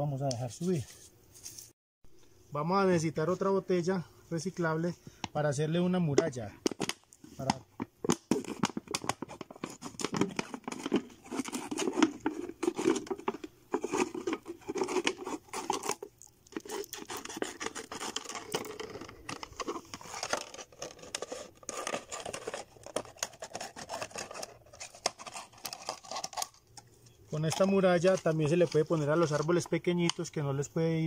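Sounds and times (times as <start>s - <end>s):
plastic crinkling: 7.8s - 29.6s.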